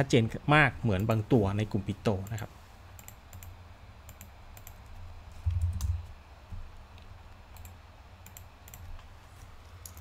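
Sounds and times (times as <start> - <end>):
mouse and keyboard clicks: 6.9 - 9.1, 9.8 - 10.0.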